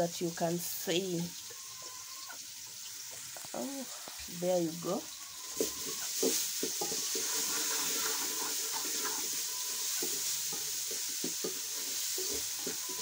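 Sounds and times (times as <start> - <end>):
onions sizzling in a pot: 0.0 - 13.0
wooden spoon scraping a pot: 5.3 - 13.0.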